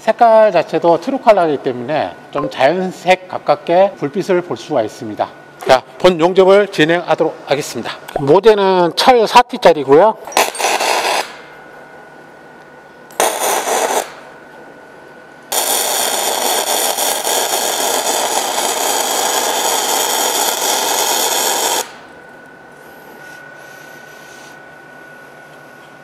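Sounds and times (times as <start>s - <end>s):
welding arc crackling: 10.3s - 11.5s, 13.1s - 14.3s, 15.5s - 22.1s.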